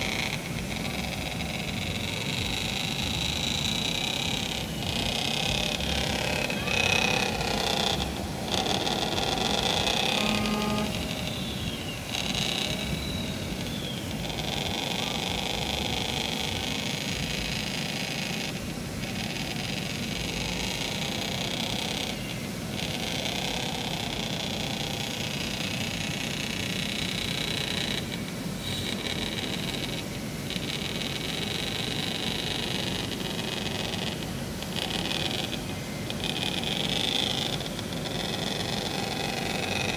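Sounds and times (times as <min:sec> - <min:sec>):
faint voices: 0:00.0 - 0:17.9
outdoor background noise: 0:00.0 - 0:39.9.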